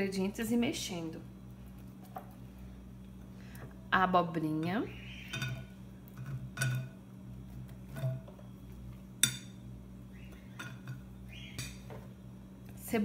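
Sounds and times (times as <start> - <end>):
glass bowls clinking: 5.2 - 7.1, 9.2 - 9.6, 10.4 - 11.9.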